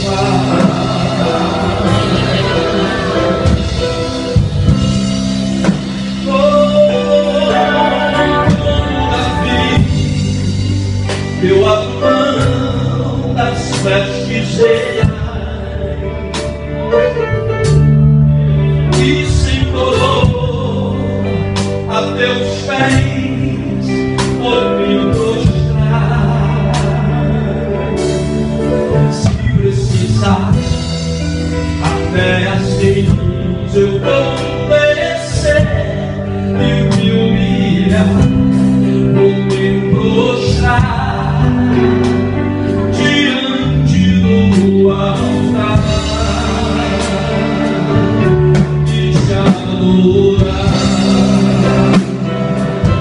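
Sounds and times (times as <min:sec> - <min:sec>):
steady drum beat: 0:00.0 - 0:14.2, 0:22.8 - 0:34.6, 0:36.9 - 0:42.6, 0:43.9 - 0:53.0
band playing: 0:00.0 - 0:53.0
held bass notes: 0:00.0 - 0:53.0
man singing gospel: 0:00.0 - 0:53.0.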